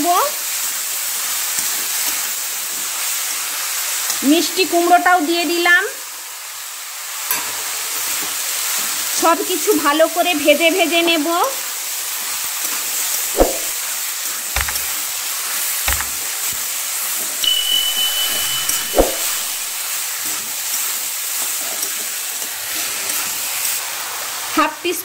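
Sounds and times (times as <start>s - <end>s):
vegetables sizzling in oil: 0.0s - 25.0s
spatula knocking pan: 14.6s - 14.9s, 15.9s - 16.2s.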